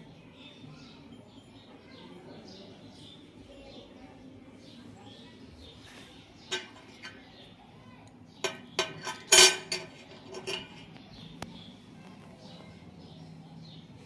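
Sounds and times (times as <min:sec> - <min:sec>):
coin clinking: 0:08.4 - 0:10.8.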